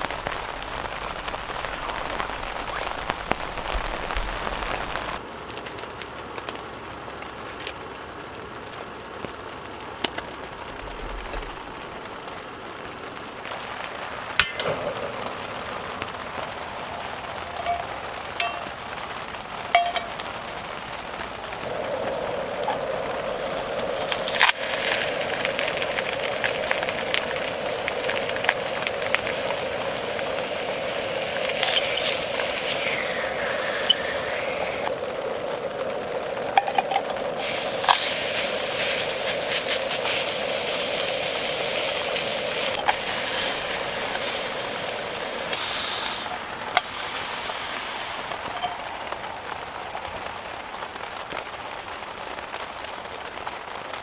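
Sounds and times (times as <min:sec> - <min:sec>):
meat sizzling in a pan: 0:22.6 - 0:34.9, 0:37.4 - 0:48.6.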